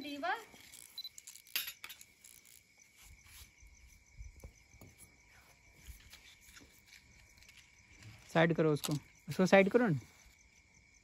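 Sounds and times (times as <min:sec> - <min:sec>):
crickets chirring: 0:00.0 - 0:11.0.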